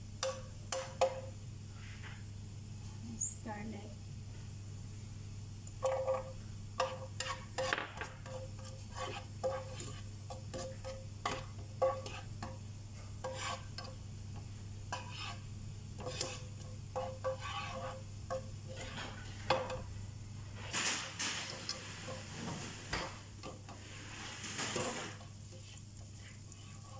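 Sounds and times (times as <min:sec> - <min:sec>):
steady low hum: 0:00.0 - 0:26.9
food sizzling: 0:05.7 - 0:26.9
spatula scraping metal wok: 0:05.8 - 0:12.6, 0:13.2 - 0:14.0, 0:14.9 - 0:19.8, 0:21.5 - 0:26.9.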